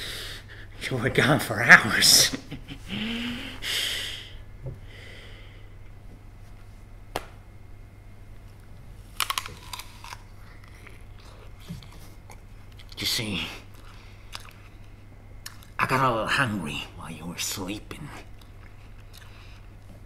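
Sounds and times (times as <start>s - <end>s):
steady low hum: 0.0s - 20.0s
teeth biting into apple: 9.2s - 13.0s.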